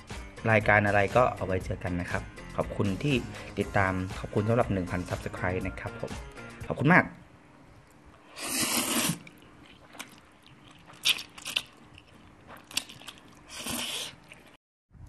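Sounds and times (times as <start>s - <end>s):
noodles being slurped: 8.2s - 14.6s
chewing: 8.9s - 14.6s.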